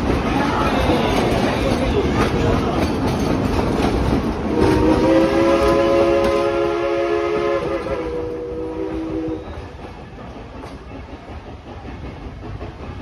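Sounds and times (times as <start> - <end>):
passenger cars rumbling: 0.0 - 13.0
steam locomotive chime whistle: 4.5 - 9.8.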